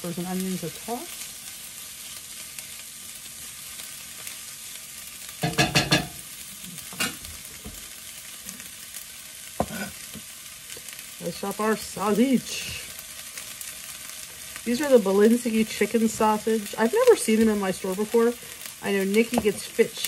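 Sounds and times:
vegetables sizzling in a frying pan: 0.0s - 20.0s.

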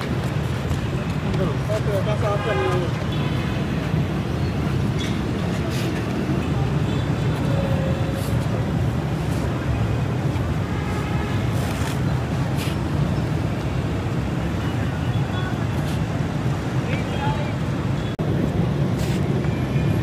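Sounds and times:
road traffic rumble: 0.0s - 20.0s.

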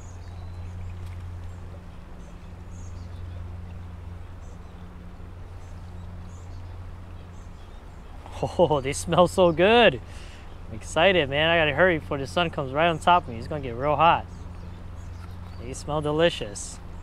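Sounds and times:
light crackles: 0.0s - 2.6s
camp stove hum and hiss: 0.0s - 17.0s.

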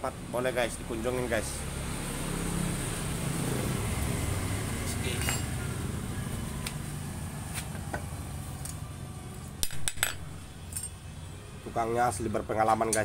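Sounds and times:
metal tools clinking: 5.1s - 5.5s, 9.6s - 11.0s.

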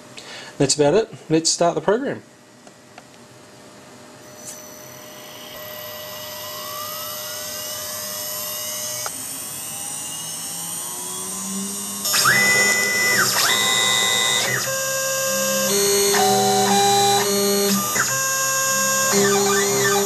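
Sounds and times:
motors whining: 4.2s - 20.0s
spindle whine rising: 4.2s - 20.0s.

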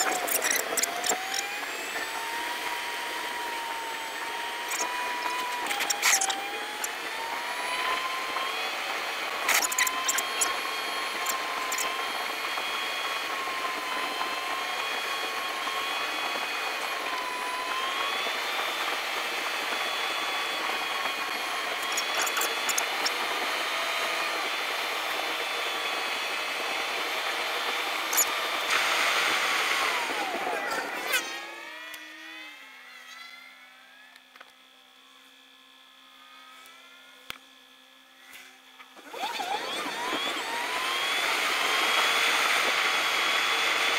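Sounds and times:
sped-up car road noise whine: 0.0s - 37.9s
sharp clicks: 4.6s - 7.0s, 9.3s - 12.0s, 21.2s - 23.3s.

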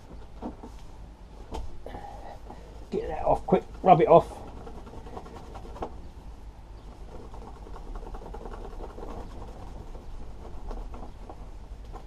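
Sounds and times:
low steady background rumble: 0.0s - 12.0s
cloth rubbing on plastic: 3.1s - 6.1s, 6.9s - 12.0s.

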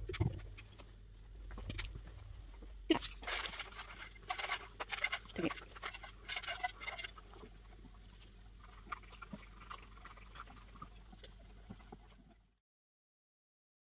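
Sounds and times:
dogs crunching food: 2.9s - 12.4s.

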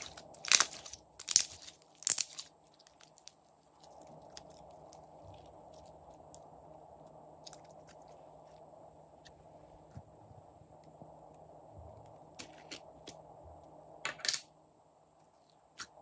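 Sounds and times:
slime squelching: 0.0s - 6.3s.

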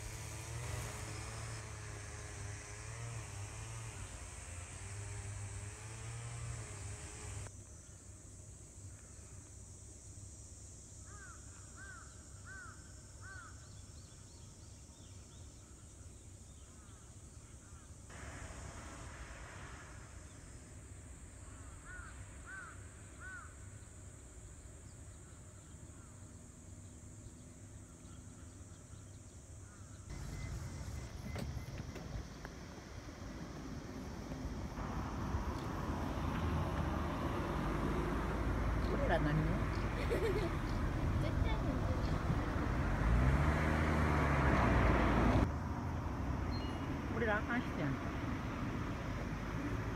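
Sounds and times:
low steady outdoor hum: 0.0s - 43.4s
crow cawing: 11.1s - 13.5s, 21.5s - 23.6s.

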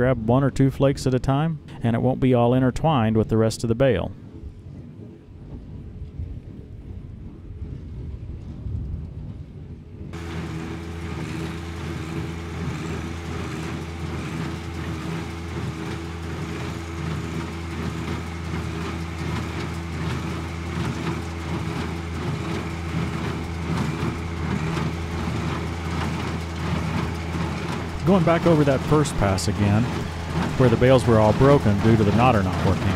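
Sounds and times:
baler mechanism knocking and clattering: 10.2s - 32.9s
tractor diesel engine under load: 10.2s - 32.9s.

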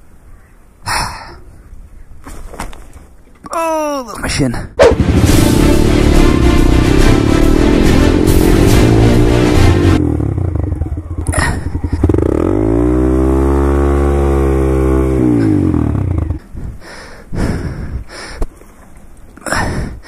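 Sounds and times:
motorcycle engine revving: 4.8s - 16.4s.

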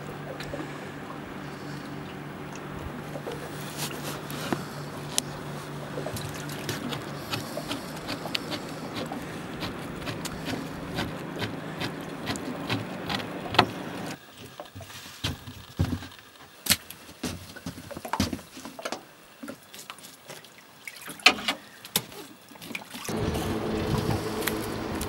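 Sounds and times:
steady low hum: 0.0s - 14.2s, 23.1s - 25.0s.

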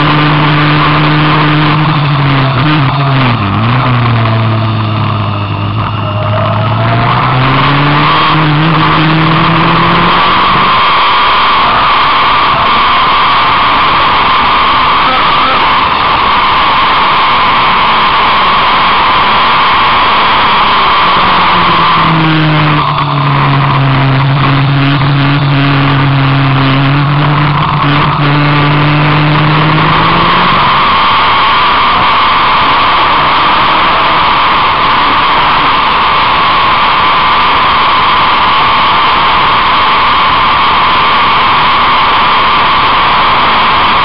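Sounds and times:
car engine note: 0.0s - 15.9s, 19.7s - 35.7s
wind and road noise: 0.0s - 44.0s.

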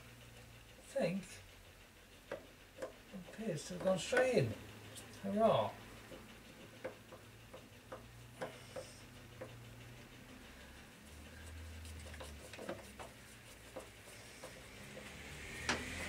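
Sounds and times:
screw clicking and tapping: 2.2s - 5.2s, 6.0s - 10.0s, 11.9s - 16.0s.

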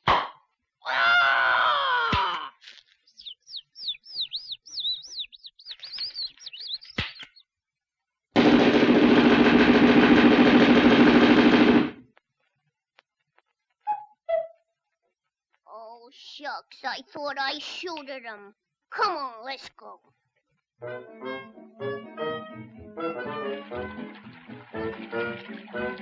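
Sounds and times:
high bird-like chirps: 3.0s - 7.5s, 13.8s - 14.6s
loud rapid rattle: 8.4s - 12.0s.

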